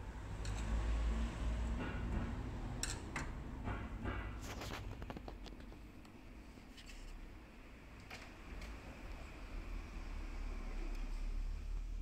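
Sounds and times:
tools and parts clicking: 0.4s - 0.7s, 2.8s - 3.4s.

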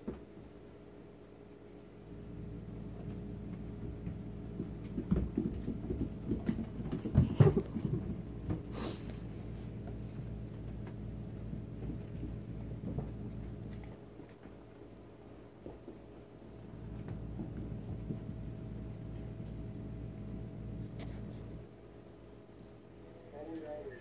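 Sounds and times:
steady low hum: 0.0s - 24.0s
hooves clattering on wooden floor: 2.8s - 20.0s.

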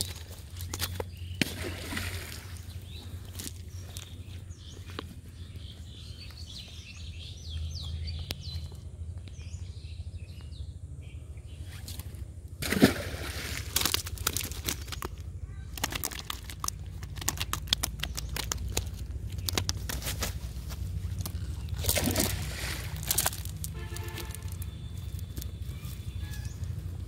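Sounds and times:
fish slapping on a net: 12.6s - 20.4s, 21.1s - 24.6s.

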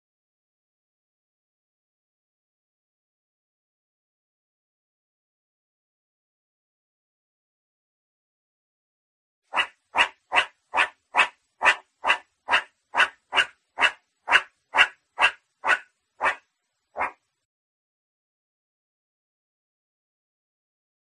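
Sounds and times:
meerkat short calls: 9.5s - 16.4s, 17.0s - 17.2s.

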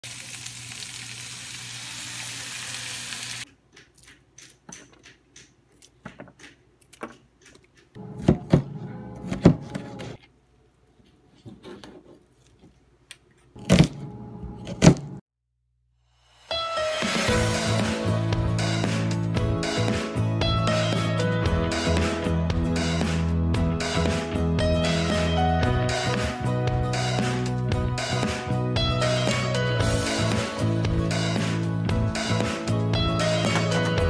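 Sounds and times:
frying pan sizzling: 0.0s - 3.5s.

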